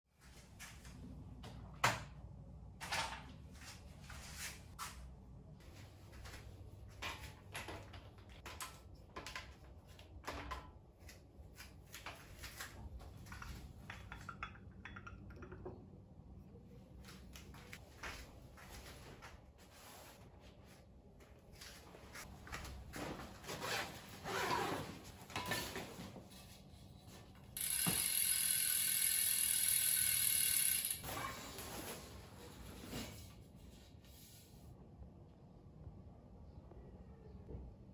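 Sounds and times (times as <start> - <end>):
bicycle parts and tools clicking: 13.2 - 15.8, 27.6 - 31.1
freehub ratchet ticking buzz: 27.6 - 31.0.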